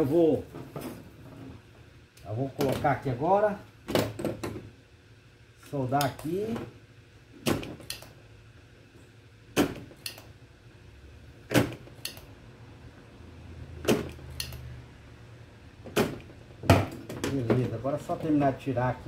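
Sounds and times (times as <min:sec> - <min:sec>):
sharp desoldering clicks: 0:07.8 - 0:08.2, 0:10.0 - 0:10.3, 0:12.0 - 0:12.3, 0:14.1 - 0:14.7.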